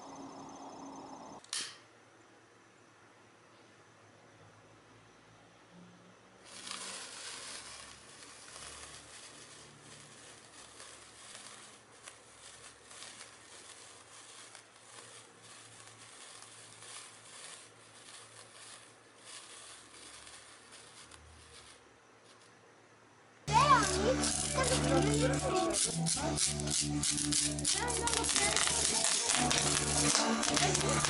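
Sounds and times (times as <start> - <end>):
sparkler fizzing and crackling: 6.4 - 22.6, 23.4 - 31.0.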